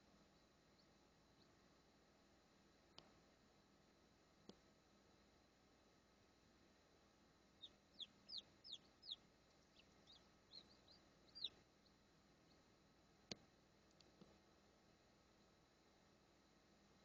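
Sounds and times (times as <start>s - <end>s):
chick peeping: 7.6s - 12.6s.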